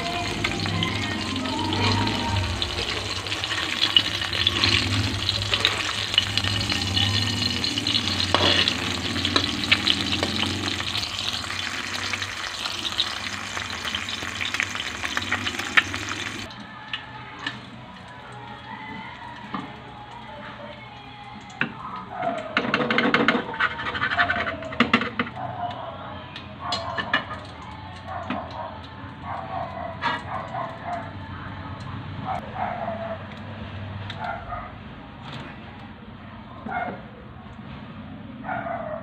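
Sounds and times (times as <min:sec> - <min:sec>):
egg sizzling in hot oil: 0:00.0 - 0:16.5.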